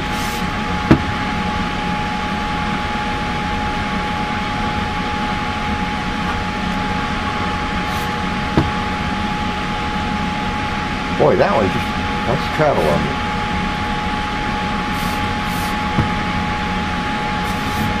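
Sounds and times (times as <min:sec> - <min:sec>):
faint steady whine: 0:00.0 - 0:18.0
blower whooshing: 0:07.2 - 0:08.4, 0:17.3 - 0:18.0.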